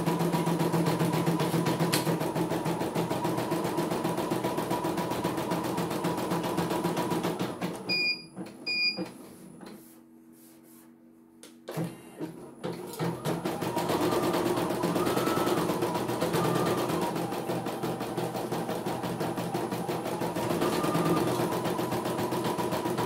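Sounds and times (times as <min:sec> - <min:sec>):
embroidery machine stitching: 0:11.7 - 0:23.0.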